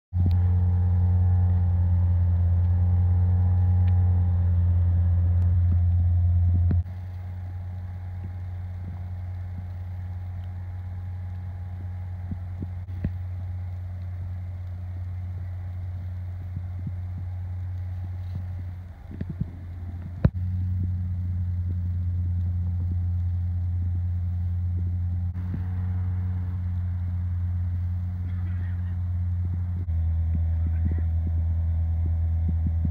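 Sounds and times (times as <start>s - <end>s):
vehicle engine idling: 0.1s - 32.9s
faint clicks: 5.4s - 25.7s.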